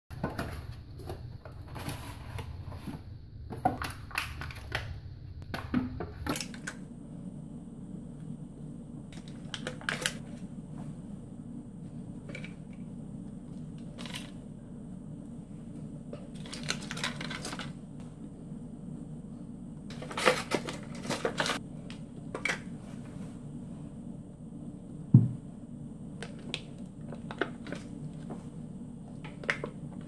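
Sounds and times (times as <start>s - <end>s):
steady low hum: 0.1s - 30.0s.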